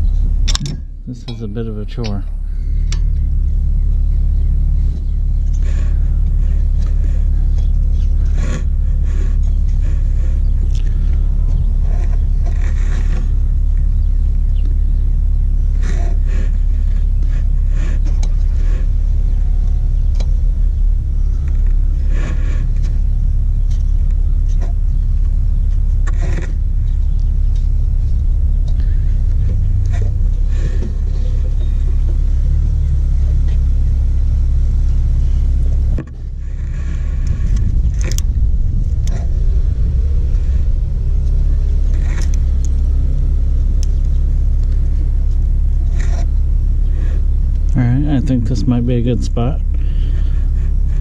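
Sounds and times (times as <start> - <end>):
steady low rumble: 0.0 - 51.0.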